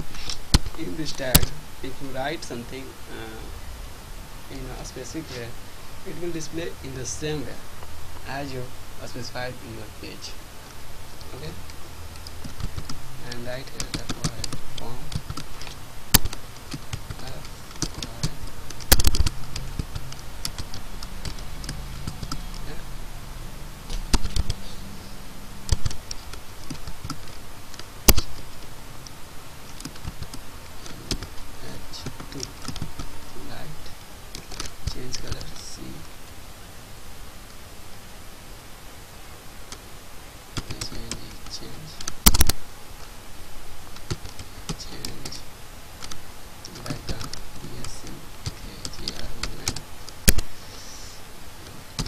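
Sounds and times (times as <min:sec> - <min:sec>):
keyboard typing: 0:12.1 - 0:22.8, 0:23.9 - 0:28.6, 0:29.7 - 0:33.1, 0:40.6 - 0:42.6, 0:46.0 - 0:52.0.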